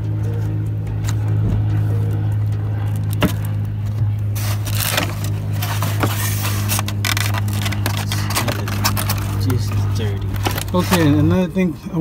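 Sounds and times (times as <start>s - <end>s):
steady low hum: 0.0s - 12.0s
rubber part scraping and rustling: 4.3s - 9.4s.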